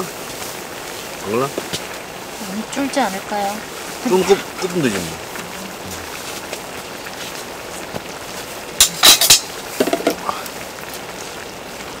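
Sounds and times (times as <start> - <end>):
stew simmering and sizzling: 0.0 - 12.0.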